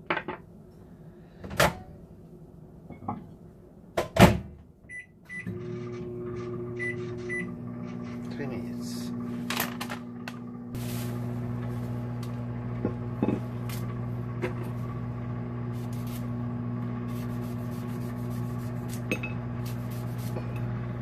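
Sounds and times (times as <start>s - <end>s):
microwave oven humming: 5.0s - 21.0s.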